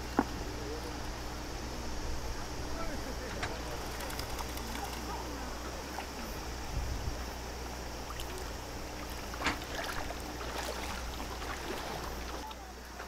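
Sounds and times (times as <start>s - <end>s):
river water rushing: 7.9s - 12.5s.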